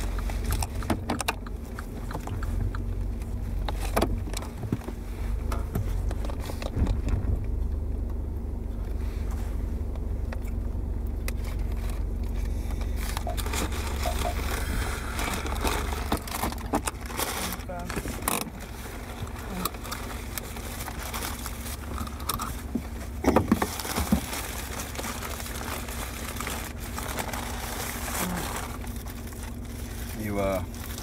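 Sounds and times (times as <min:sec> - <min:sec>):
low hum inside a car: 0:00.0 - 0:31.0
paper bag rustling: 0:11.4 - 0:31.0.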